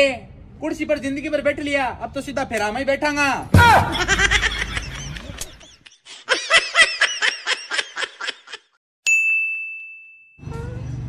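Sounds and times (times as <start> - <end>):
person laughing: 3.6 - 8.8
sharp ringing ding: 9.1 - 10.8.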